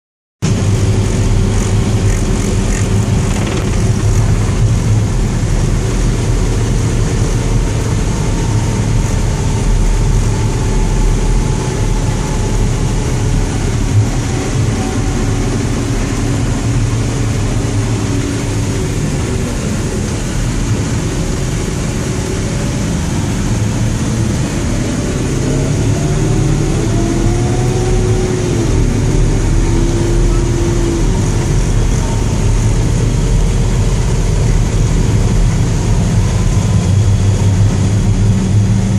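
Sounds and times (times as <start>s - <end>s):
diesel truck engine drone: 0.4s - 38.9s
tyres on gravel road: 0.5s - 5.6s
rising whines: 0.6s - 38.9s.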